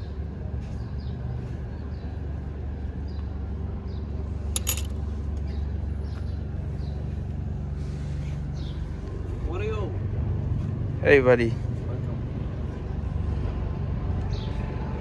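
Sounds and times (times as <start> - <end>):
metallic clink with ring: 4.6 - 4.9.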